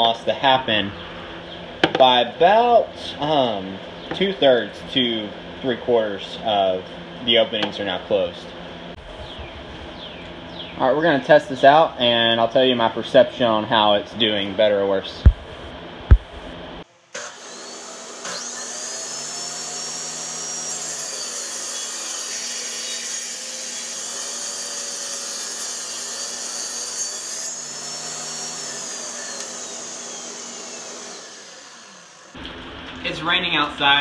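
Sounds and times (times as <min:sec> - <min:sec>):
table saw motor whining: 0:17.0 - 0:32.4
saw ripping a wooden board: 0:17.1 - 0:32.4.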